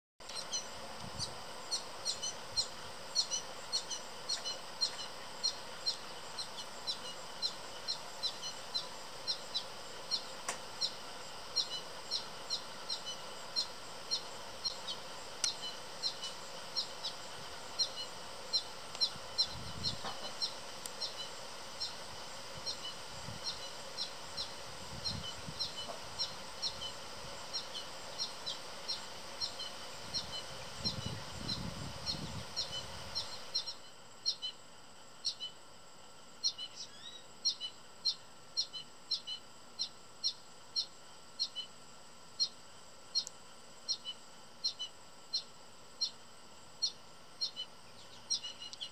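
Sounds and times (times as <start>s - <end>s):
bird chirping rapidly: 0.3s - 17.2s, 22.6s - 34.5s, 46.8s - 48.9s.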